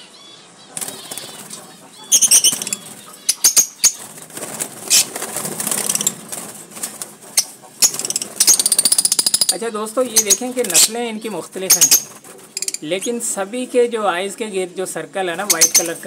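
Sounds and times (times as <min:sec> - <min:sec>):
shrill bird chirps: 0:00.0 - 0:04.1, 0:07.4 - 0:11.0, 0:11.7 - 0:13.2, 0:15.4 - 0:16.0
wings flapping: 0:00.8 - 0:13.7, 0:15.3 - 0:16.0.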